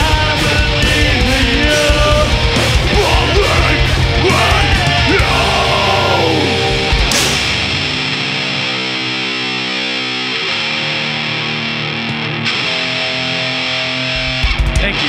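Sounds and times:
heavy drumming: 0.0s - 9.0s, 14.1s - 15.0s
distorted guitars and bass: 0.0s - 15.0s
harsh screamed vocals: 1.8s - 7.2s
cymbal crash: 6.5s - 9.1s.

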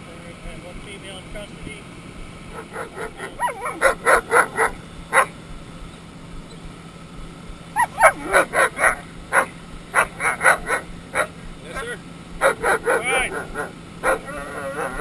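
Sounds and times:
steady low hum: 0.0s - 15.0s
dog barking: 2.5s - 5.4s, 7.8s - 15.0s
dog whining: 2.6s - 5.3s, 7.7s - 15.0s.

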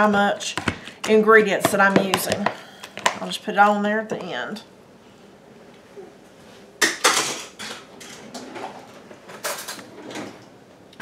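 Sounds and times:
potato masher knocking plastic bowl: 0.0s - 3.2s.

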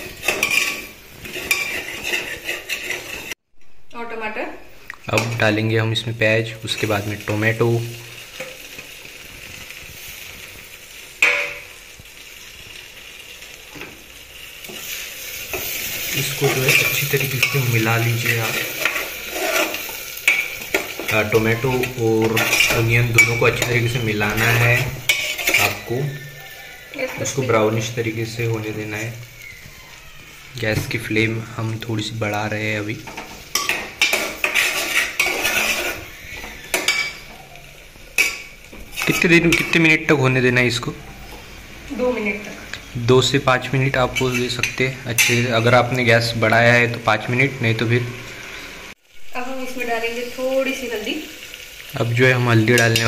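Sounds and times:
metal spoon stirring: 0.0s - 3.4s, 14.6s - 29.1s, 33.0s - 37.3s, 38.2s - 40.0s, 44.2s - 46.0s
food sizzling in oil: 0.0s - 53.0s
spoon clinking against pot: 36.7s - 37.3s.

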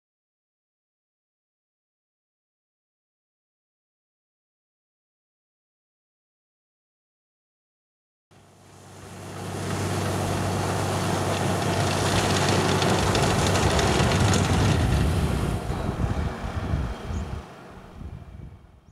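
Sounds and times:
snow blower humming: 8.4s - 18.5s
hiss of blown snow: 8.6s - 15.7s.

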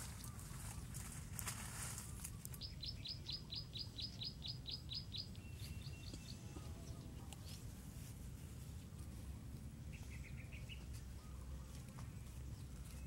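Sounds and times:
low steady rumble: 5.2s - 13.0s.

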